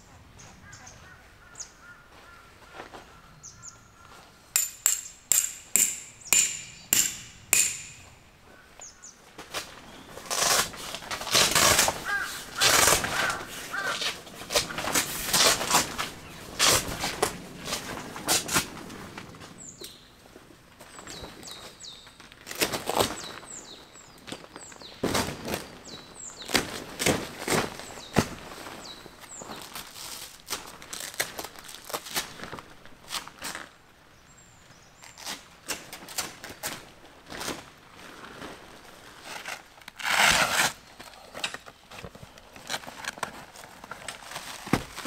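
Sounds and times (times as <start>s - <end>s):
plastic sheet crinkling and rustling: 24.4s - 33.7s, 35.1s - 45.0s.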